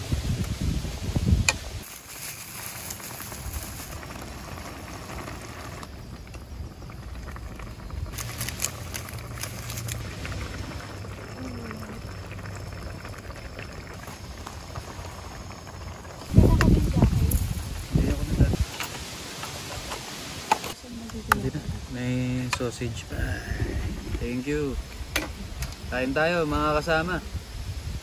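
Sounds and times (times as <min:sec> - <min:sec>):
soup bubbling in a pan: 0:01.4 - 0:18.8.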